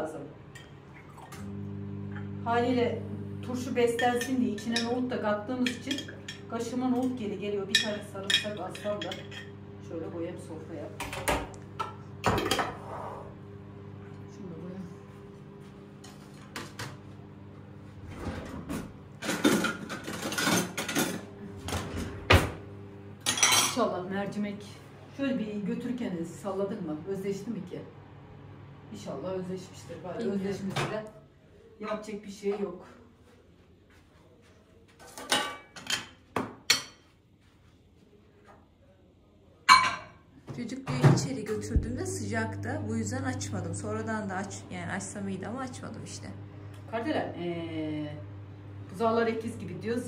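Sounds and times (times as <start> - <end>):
dishes and pot clattering: 5.6 - 9.6, 11.0 - 12.9, 19.2 - 21.2, 23.2 - 23.8, 35.0 - 37.1, 39.7 - 40.2
metal utensils clattering: 19.2 - 21.2.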